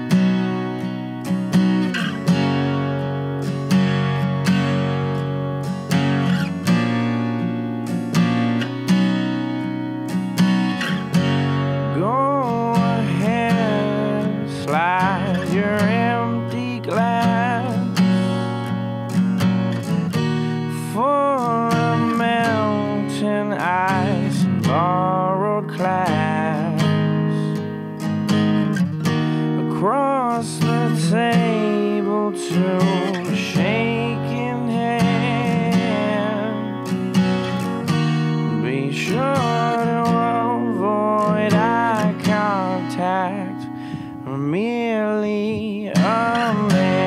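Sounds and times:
acoustic guitar strumming: 0.0 - 47.0
man singing: 11.8 - 18.5, 20.7 - 27.6, 29.6 - 37.1, 38.2 - 47.0.

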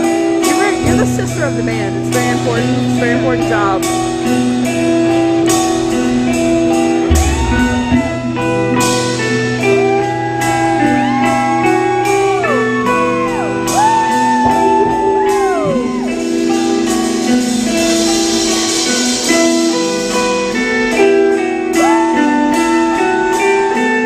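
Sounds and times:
drum and cymbal hits: 0.0 - 12.5, 13.2 - 23.5
electric guitar lead bending notes: 0.0 - 24.0
bass line: 0.6 - 18.4.

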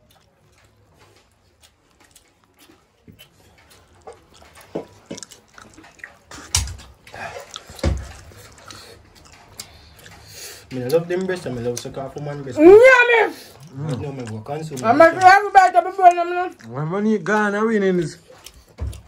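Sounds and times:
chewing and lip smacks: 0.0 - 12.6, 13.3 - 19.0.

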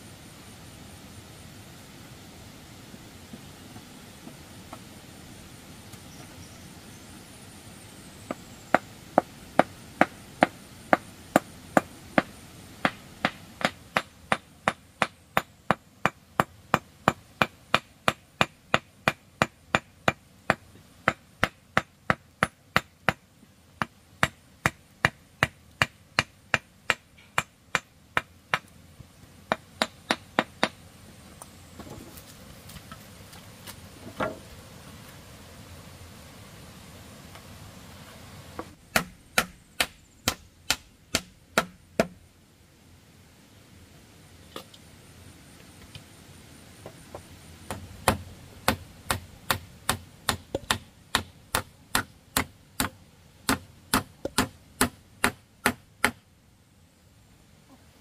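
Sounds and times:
hammer striking concrete: 11.4 - 23.2, 38.9 - 42.2.

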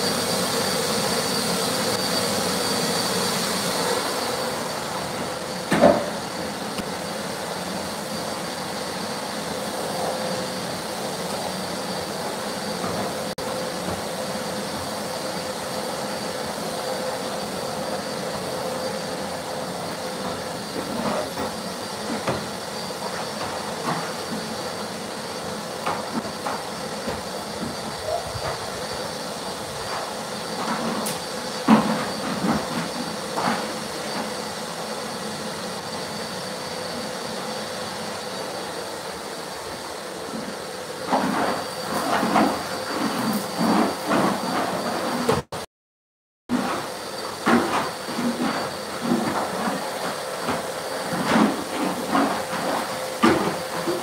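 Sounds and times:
vacuum cleaner motor whine: 0.0 - 45.5, 46.5 - 54.0.

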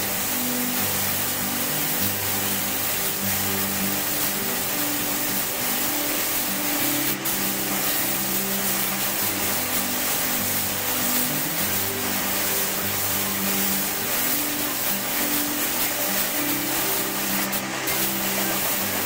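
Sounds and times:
music with low held notes: 0.0 - 19.0
steady hiss: 0.0 - 19.0.

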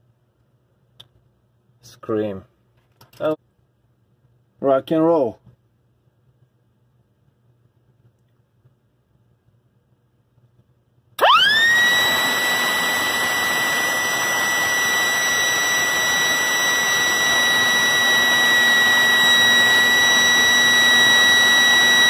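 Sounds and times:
electric siren steady high pitch: 11.2 - 22.0.

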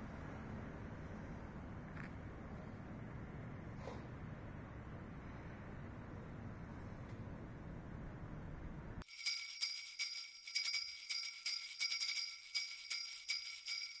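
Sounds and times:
low steady rumble: 0.0 - 9.0
jingle bells shaken: 9.0 - 14.0.

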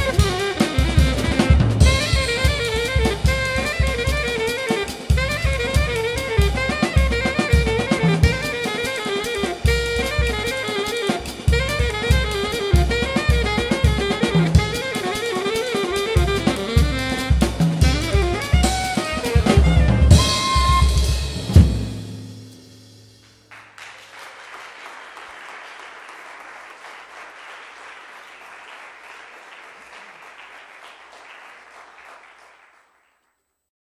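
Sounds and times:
alto saxophone: 0.0 - 21.8
drum kit: 0.0 - 23.6
applause: 23.2 - 33.6.

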